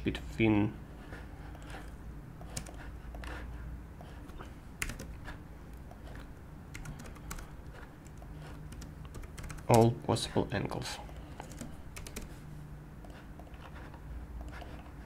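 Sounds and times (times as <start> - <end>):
low steady hum: 0.0 - 15.0
keyboard keystrokes and clicks: 4.8 - 5.2, 5.8 - 9.9, 11.1 - 12.3.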